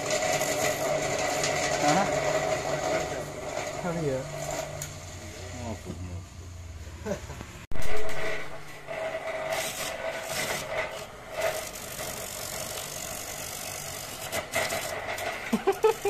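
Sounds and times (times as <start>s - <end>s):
coconut scraping rasp: 0.0s - 5.6s, 8.0s - 16.0s.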